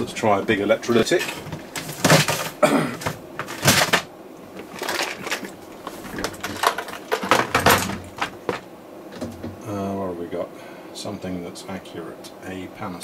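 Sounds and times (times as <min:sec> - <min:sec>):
rattling and scraping: 0:00.9 - 0:09.6
hands rummaging through components: 0:01.0 - 0:08.7.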